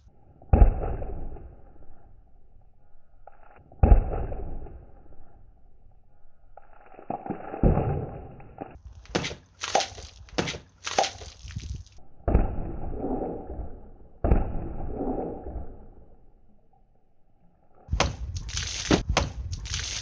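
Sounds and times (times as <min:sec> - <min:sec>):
juice gushing and splashing: 0:08.9 - 0:12.0, 0:17.9 - 0:20.0
knife slashing cartons: 0:09.1 - 0:11.2.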